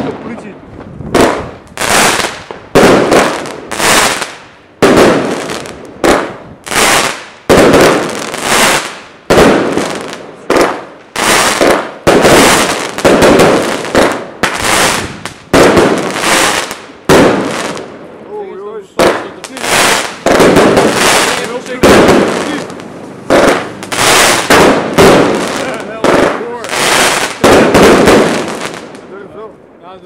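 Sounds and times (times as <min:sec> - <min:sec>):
firework salute bangs: 0:18.9 - 0:29.1.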